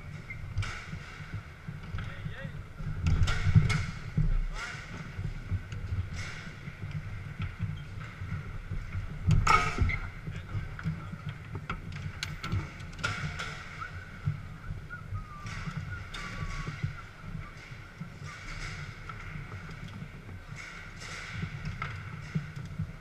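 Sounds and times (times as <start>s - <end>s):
foosball ball and rods clacking: 3.0s - 10.1s.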